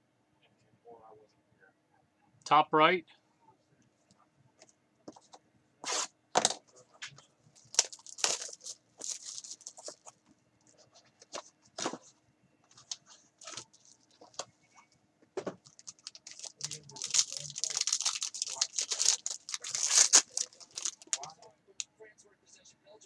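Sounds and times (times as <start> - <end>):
plastic shrink wrap crinkling: 7.6 - 10.2, 12.7 - 14.5, 15.6 - 21.5.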